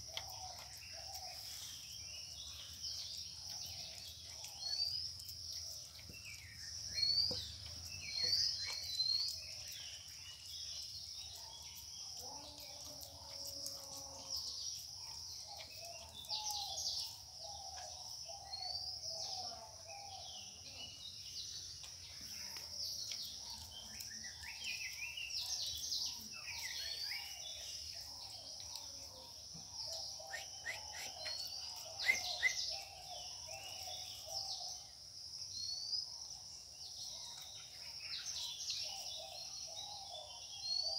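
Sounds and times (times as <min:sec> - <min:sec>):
birds chirping and calling: 0:23.1 - 0:34.9.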